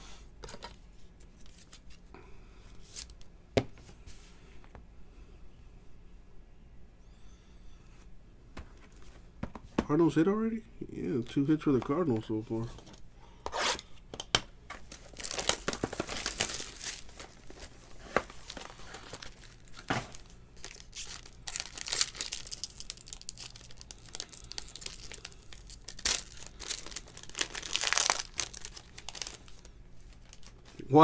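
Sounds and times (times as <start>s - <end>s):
foil wrapper crinkling and tearing: 14.8s - 30.8s.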